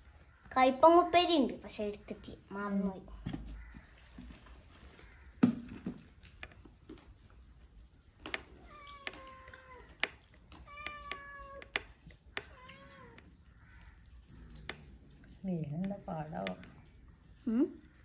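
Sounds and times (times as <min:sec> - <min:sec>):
cat meowing: 0:08.6 - 0:10.0, 0:10.6 - 0:11.7, 0:12.4 - 0:13.8.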